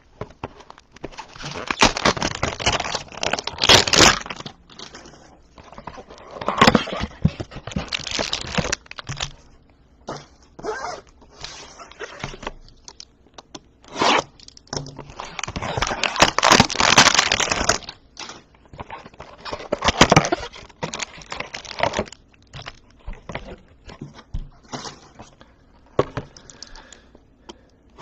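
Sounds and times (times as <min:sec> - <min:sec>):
plastic wrap rustling: 0:00.0 - 0:13.1, 0:13.8 - 0:25.4
cardboard tearing: 0:01.0 - 0:09.0, 0:13.8 - 0:14.4, 0:15.1 - 0:23.5.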